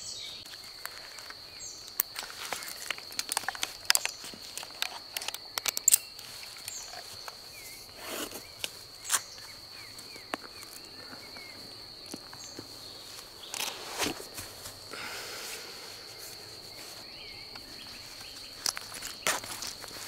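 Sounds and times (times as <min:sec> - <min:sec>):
crickets chirring: 0:00.0 - 0:20.0
clicks of gear handled: 0:00.5 - 0:07.4
rustling on grass: 0:06.1 - 0:20.0.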